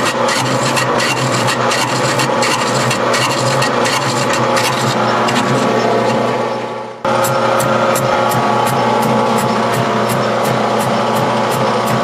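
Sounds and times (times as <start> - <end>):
metal cutting scrape: 0.0 - 6.5
lathe humming: 0.0 - 12.0.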